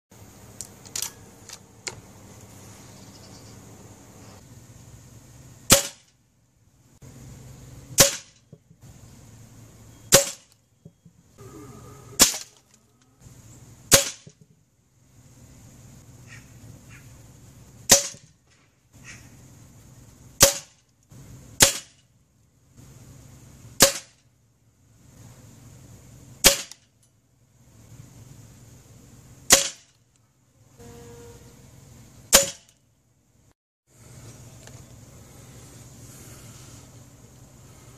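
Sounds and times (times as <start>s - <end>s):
air rifle shots: 5.7s - 6.1s, 8.0s - 8.4s, 10.1s - 10.5s, 12.2s - 12.5s, 13.9s - 14.3s, 17.9s - 18.3s, 20.4s - 20.7s, 21.6s - 22.0s, 23.8s - 24.2s, 26.4s - 26.8s, 29.5s - 30.0s.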